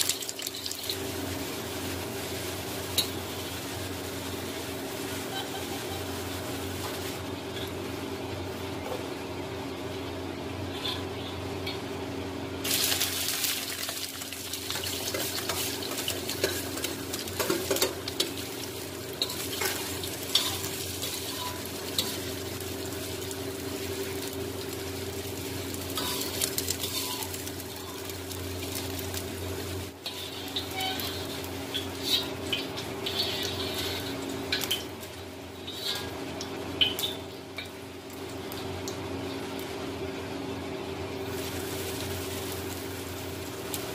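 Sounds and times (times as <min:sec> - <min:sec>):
vegetables sizzling in oil: 0:00.0 - 0:09.8, 0:10.7 - 0:43.9
metal spoon scraping pan: 0:30.0 - 0:34.9, 0:35.6 - 0:36.2.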